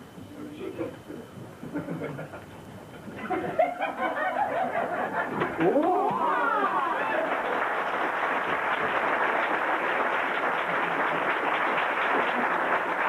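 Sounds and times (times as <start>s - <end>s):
audience laughter: 1.6s - 8.0s
audience applauding: 4.6s - 13.0s.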